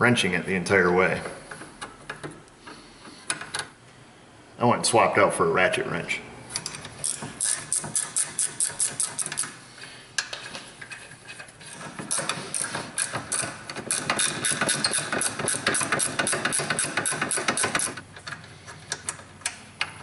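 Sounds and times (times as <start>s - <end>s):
ratcheting wrench clicking: 6.6s - 9.6s, 12.1s - 18.0s.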